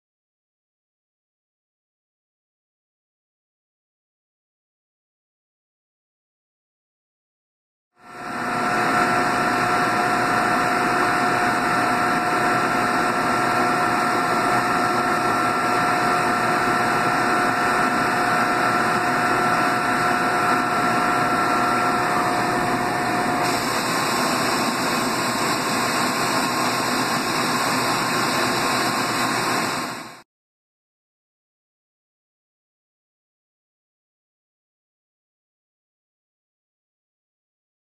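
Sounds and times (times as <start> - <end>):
lathe machine whir: 8.0 - 30.2.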